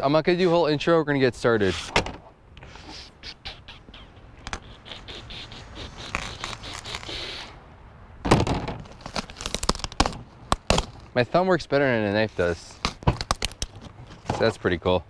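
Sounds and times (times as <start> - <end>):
plastic straps scraping cardboard: 5.9 - 7.4, 8.8 - 11.0
packing tape tearing: 6.0 - 7.5, 8.8 - 11.0, 12.8 - 13.8.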